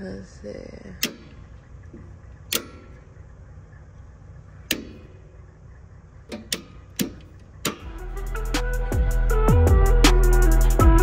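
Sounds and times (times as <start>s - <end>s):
heavy machine engine idling: 0.0s - 9.5s
sharp clicks: 1.0s - 3.2s, 4.6s - 5.2s, 6.2s - 7.9s.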